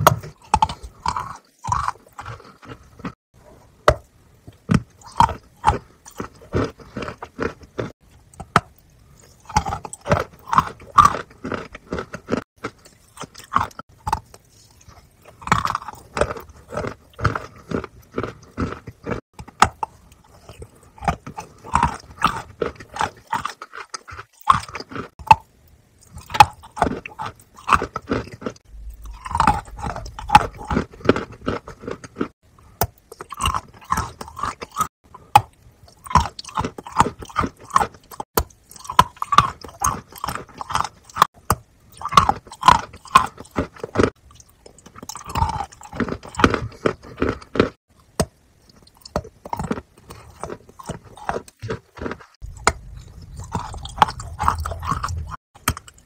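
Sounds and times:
woman chewing chocolate bars: 0.0 - 56.0.

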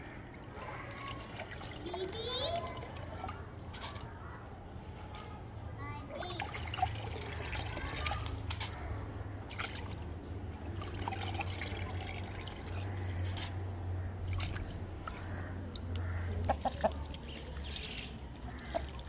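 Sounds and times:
water trickling into bucket: 0.0 - 4.2, 6.1 - 19.0
chicken clucking: 16.4 - 17.1.

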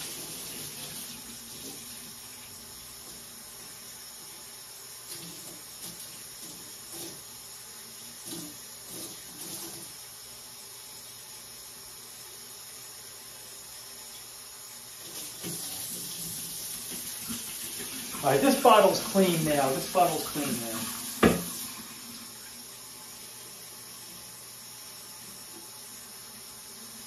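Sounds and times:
water running at sink: 0.0 - 27.0
plastic bottle knocks and sloshes: 21.2 - 21.5.

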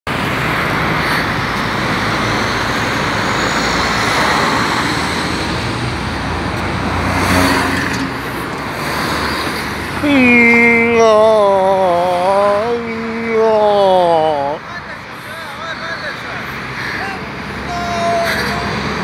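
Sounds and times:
tyre and engine noise rushing: 0.1 - 19.0
vehicles passing on road: 0.1 - 19.0.

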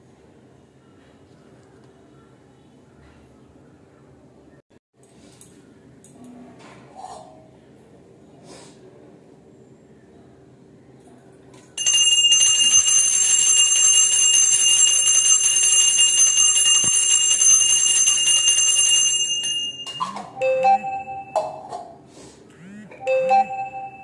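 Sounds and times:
brass hand bell ringing: 11.8 - 21.6.

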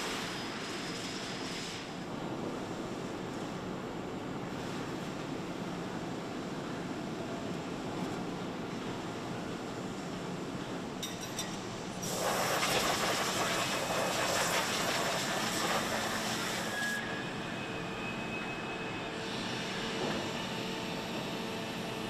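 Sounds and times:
loud air hiss: 0.0 - 2.0, 12.0 - 17.0, 19.2 - 20.0
machinery hum: 11.6 - 22.0.

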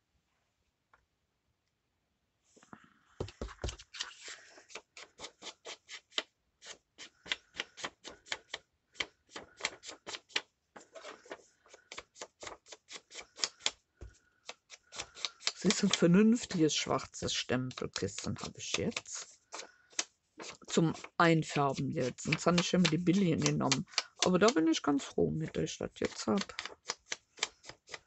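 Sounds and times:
ink pad tapping on paper: 21.7 - 24.6.

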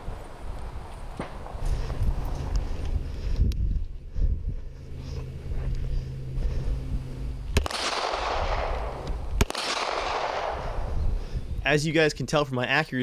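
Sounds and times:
footsteps on asphalt: 0.0 - 7.6
pistol shot echoing: 7.5 - 10.8.

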